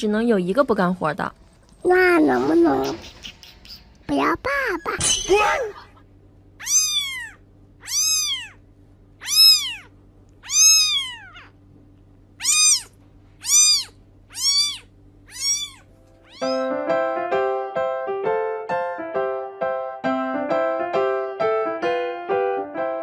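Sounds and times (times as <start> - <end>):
kitten meowing: 6.6 - 8.6, 9.2 - 11.6, 12.4 - 16.7
piano music: 16.4 - 23.0.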